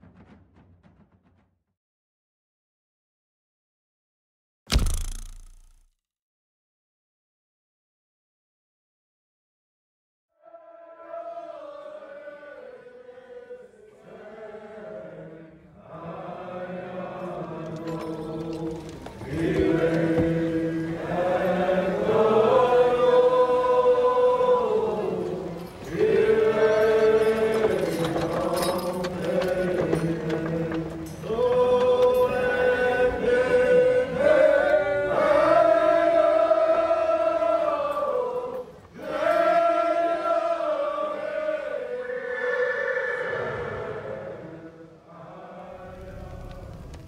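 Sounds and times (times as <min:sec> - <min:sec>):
choir-like vocal chanting: 0:10.3 - 0:47.0.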